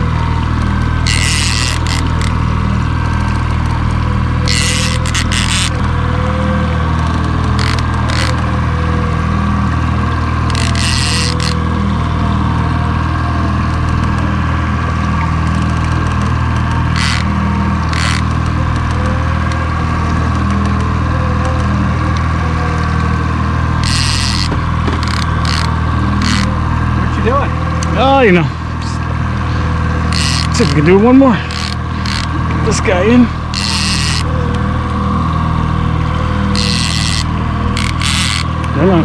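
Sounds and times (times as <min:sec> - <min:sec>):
boat engine running: 0:00.0 - 0:39.0
short bursts of noise: 0:07.6 - 0:08.4, 0:10.5 - 0:11.6, 0:16.9 - 0:17.3, 0:17.9 - 0:18.4, 0:23.8 - 0:26.5, 0:30.1 - 0:30.8, 0:31.4 - 0:32.4, 0:36.5 - 0:38.6.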